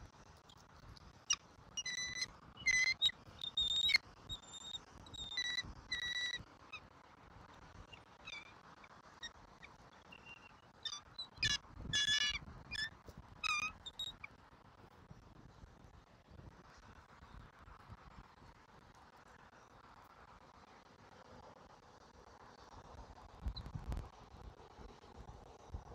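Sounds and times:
eagles high-pitched chirping calls: 1.3s - 6.3s.

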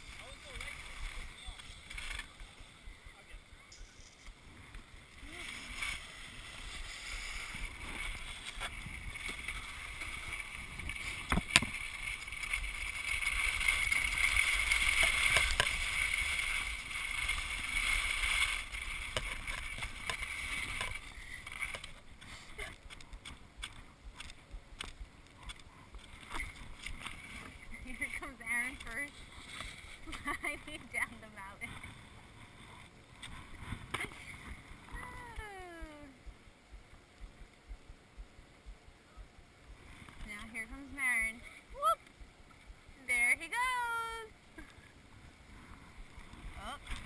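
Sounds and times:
snowboard scraping over snow: 4.4s - 22.7s.

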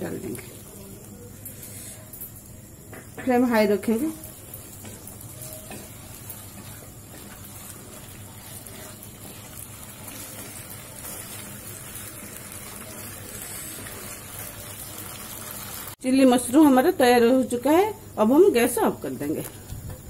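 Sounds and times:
sauce sizzling and bubbling: 0.0s - 17.1s
wooden spatula stirring: 3.8s - 15.9s.

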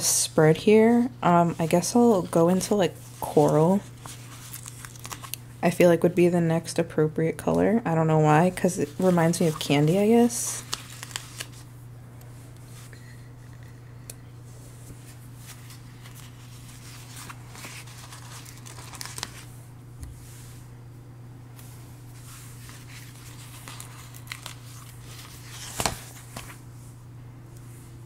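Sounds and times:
paper sheet rustling: 1.5s - 5.4s, 8.8s - 11.7s, 14.9s - 19.5s, 21.6s - 26.6s
stickers crinkling and crackling: 1.6s - 5.4s, 8.7s - 11.7s, 15.4s - 19.5s, 22.6s - 26.6s.

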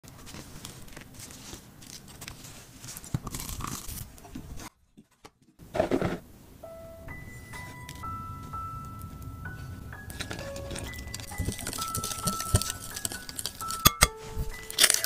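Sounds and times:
crust crackling: 0.0s - 4.7s, 7.1s - 15.0s
chime note: 6.6s - 15.0s.

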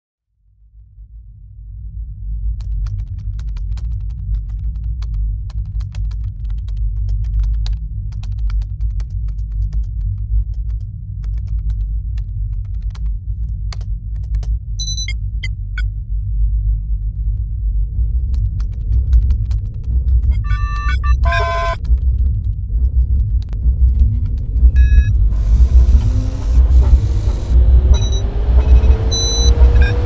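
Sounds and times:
steady low drone: 0.6s - 30.0s
high electronic beep: 14.8s - 15.2s, 20.3s - 21.8s, 24.8s - 30.0s.

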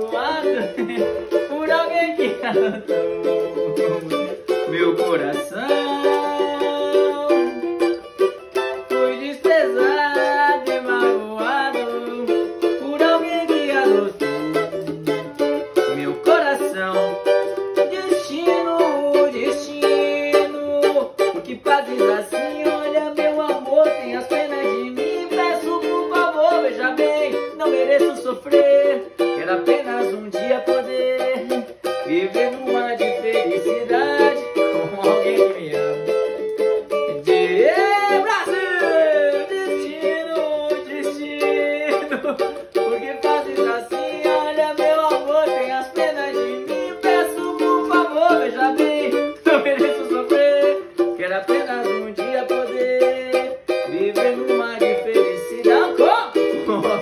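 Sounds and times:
cavaquinho strumming: 0.0s - 57.0s
wavering vocal sounds: 37.0s - 57.0s.

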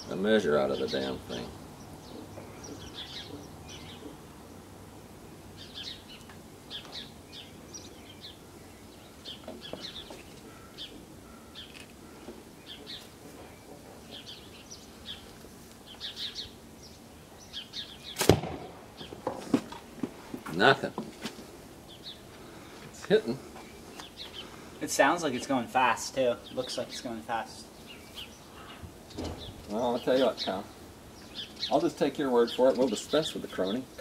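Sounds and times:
small birds chirping: 0.0s - 34.0s
slingshot firing crack: 18.1s - 18.9s.

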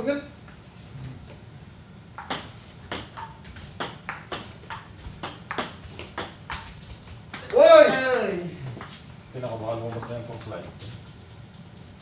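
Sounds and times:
table tennis ball clicking: 2.2s - 6.6s.

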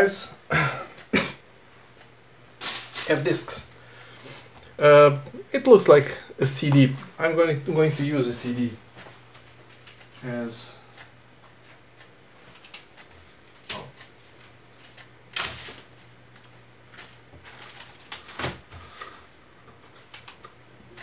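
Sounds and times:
rustling of objects being rummaged: 16.9s - 20.6s.

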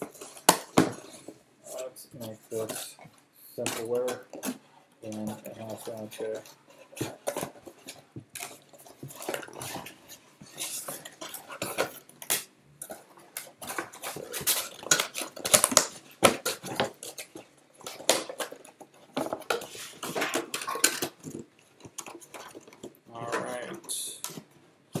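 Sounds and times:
cardboard box crackling: 12.9s - 23.0s.

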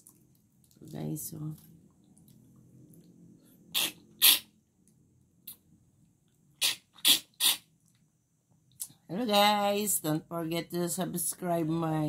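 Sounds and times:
hissy slurps: 6.6s - 7.6s.

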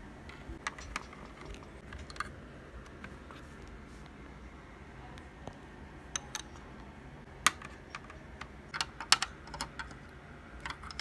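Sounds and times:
plastic bricks clicking: 7.4s - 10.0s.

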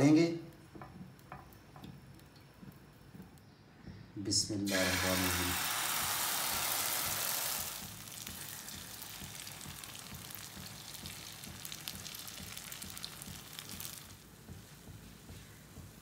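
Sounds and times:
batter sizzling in hot oil: 4.7s - 14.8s
small oil pops: 7.8s - 15.0s.

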